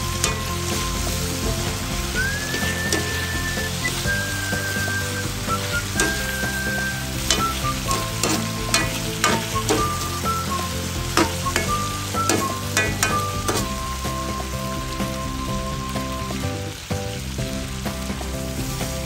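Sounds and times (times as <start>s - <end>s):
spatula scraping and knocking pan: 0.0s - 13.8s
chicken sizzling in a wok: 0.0s - 19.0s
quiet background music: 0.0s - 19.0s.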